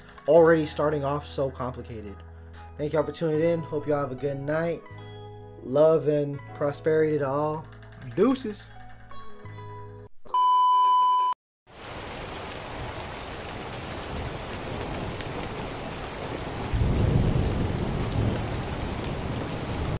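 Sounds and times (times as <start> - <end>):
loud steady beep: 10.3 - 11.4.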